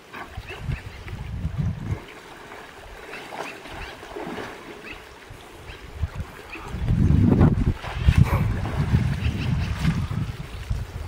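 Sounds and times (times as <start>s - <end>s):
wind rumble on microphone: 0.0s - 2.2s, 5.2s - 11.0s
river water splashing: 0.0s - 11.0s.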